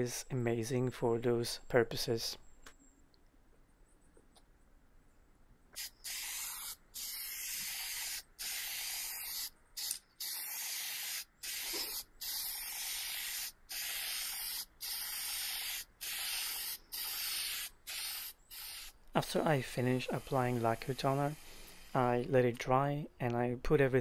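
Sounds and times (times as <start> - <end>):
aerosol can spraying: 5.8 - 19.0, 19.9 - 22.2.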